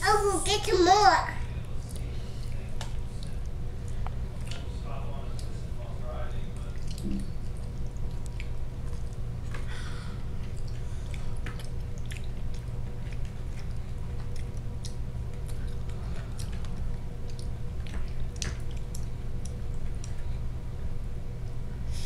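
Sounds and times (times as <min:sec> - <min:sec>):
steady low hum: 0:00.0 - 0:22.0
children chewing and lip smacking: 0:01.8 - 0:05.6, 0:06.5 - 0:09.7, 0:10.4 - 0:20.4.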